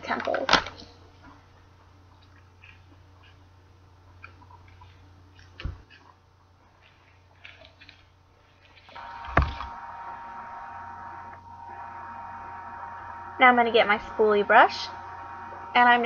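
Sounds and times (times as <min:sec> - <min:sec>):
low electrical hum: 0:00.0 - 0:16.0
hiss with faint whine: 0:08.8 - 0:16.0.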